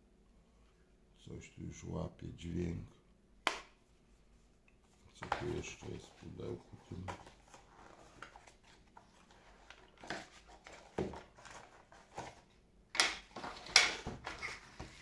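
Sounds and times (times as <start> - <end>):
packaging rustling: 5.4 - 12.6.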